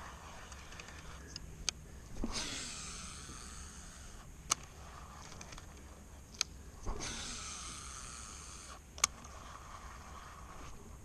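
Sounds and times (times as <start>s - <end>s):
reel spool whirring: 2.1s - 5.6s, 6.8s - 11.0s
fishing reel click: 7.0s - 9.2s.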